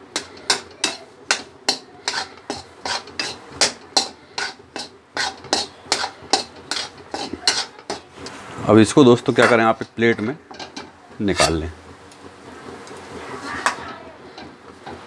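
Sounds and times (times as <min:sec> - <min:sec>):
metal spatula scraping metal pan: 0:00.0 - 0:08.4.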